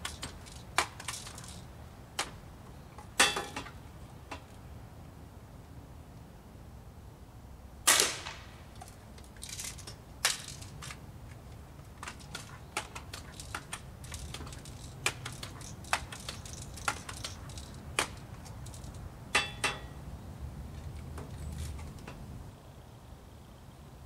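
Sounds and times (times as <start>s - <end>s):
air rifle shot: 7.9s - 8.6s
light clicks and knocks: 8.8s - 20.0s.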